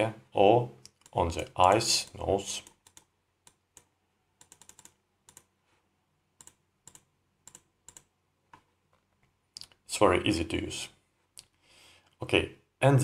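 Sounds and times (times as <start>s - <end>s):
computer mouse and keyboard clicking: 0.8s - 5.5s, 6.4s - 8.7s.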